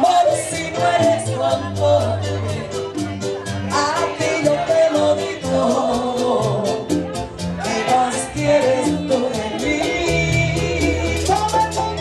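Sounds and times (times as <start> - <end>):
guitar and bass: 0.0 - 12.0
person singing: 0.0 - 12.0
scraped guira beat: 0.0 - 12.0.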